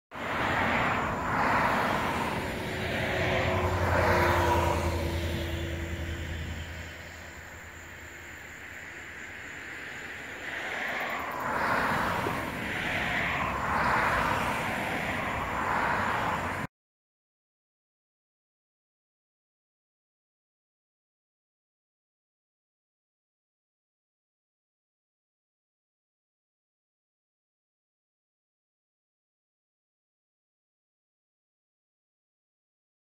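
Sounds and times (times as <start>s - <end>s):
engine hum: 0.1s - 16.7s
car tyres hissing past: 0.2s - 16.7s.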